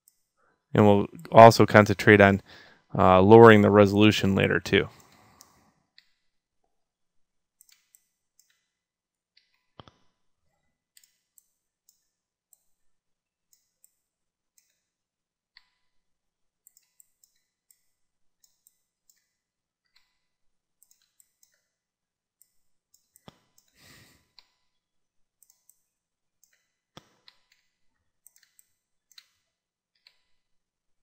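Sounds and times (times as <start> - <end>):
person breathing out: 2.4 - 2.9, 23.8 - 24.2
mouse and keyboard clicking: 7.6 - 8.6, 20.8 - 21.7, 25.4 - 29.4.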